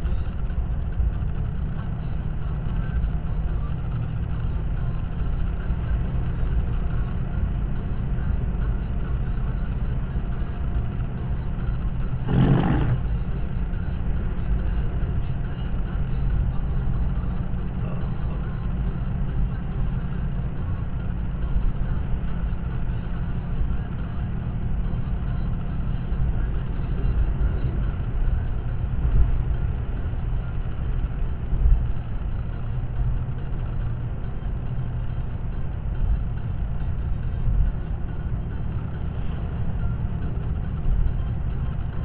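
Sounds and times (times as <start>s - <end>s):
car engine and tyre rumble: 0.0s - 42.0s
oncoming vehicle passing: 12.2s - 13.3s.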